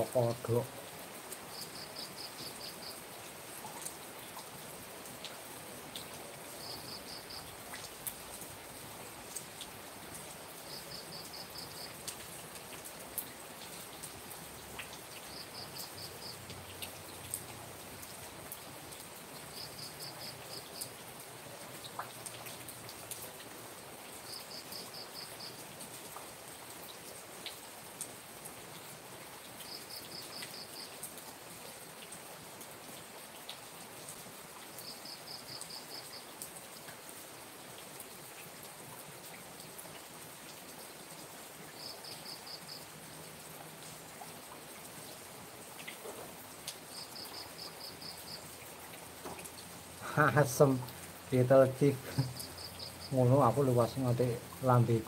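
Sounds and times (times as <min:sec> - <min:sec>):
drips ticking and splashing: 0:00.0 - 0:55.0
rain falling: 0:00.0 - 0:55.0
insect chirping in trills: 0:01.5 - 0:03.1, 0:06.6 - 0:07.8, 0:10.6 - 0:12.0, 0:15.1 - 0:16.4, 0:19.4 - 0:21.0, 0:24.2 - 0:25.6, 0:29.6 - 0:31.0, 0:34.7 - 0:36.3, 0:41.8 - 0:42.9, 0:46.9 - 0:48.6, 0:51.8 - 0:54.0.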